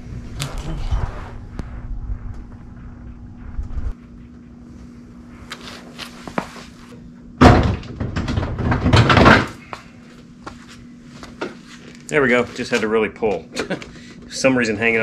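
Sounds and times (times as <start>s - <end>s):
plastic banging and rattling: 7.4s - 9.6s.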